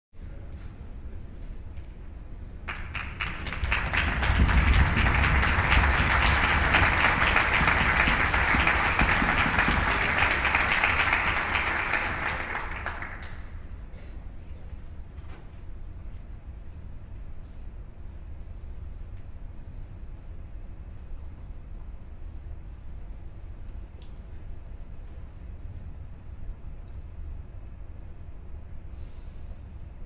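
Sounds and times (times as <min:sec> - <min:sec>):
audience applauding: 0:02.7 - 0:13.6.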